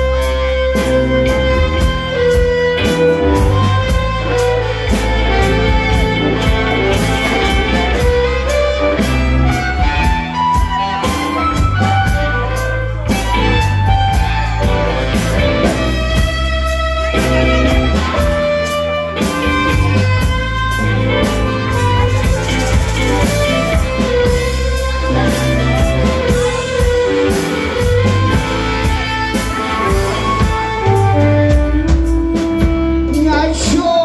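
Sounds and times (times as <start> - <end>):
electric guitars and bass: 0.0 - 34.0
harmonica long notes: 0.0 - 34.0
drum beat: 0.8 - 33.4.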